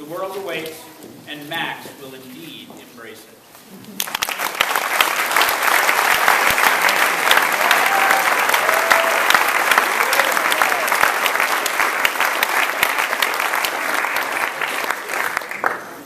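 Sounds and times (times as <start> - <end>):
audience clapping: 4.0 - 16.0.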